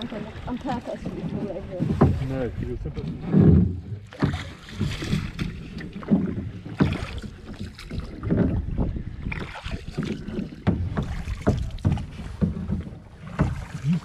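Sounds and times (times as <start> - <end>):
paddles pulling through water: 0.0 - 14.0
wind buffeting microphone: 0.0 - 14.0.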